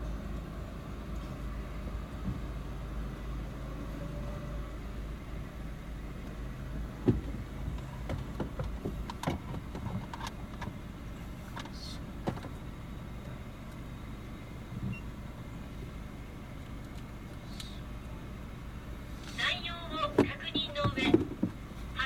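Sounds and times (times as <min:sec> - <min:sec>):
car engine idling: 0:00.0 - 0:22.0
clicks and knocks in car cabin: 0:06.2 - 0:10.8, 0:11.5 - 0:12.7, 0:19.3 - 0:21.6.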